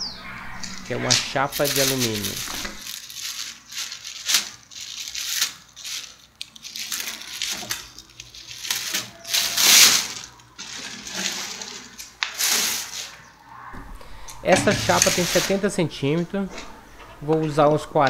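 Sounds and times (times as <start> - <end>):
plastic bag rustling: 1.5 - 13.2.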